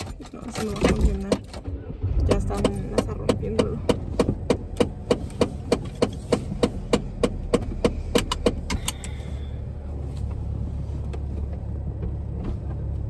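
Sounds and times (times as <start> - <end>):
turn signal ticking: 0.0 - 9.4
car rumble: 0.0 - 13.0.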